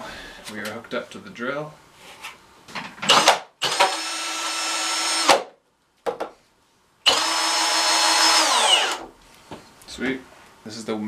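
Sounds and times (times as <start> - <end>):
drill motor whine: 3.1 - 5.3, 7.1 - 9.1.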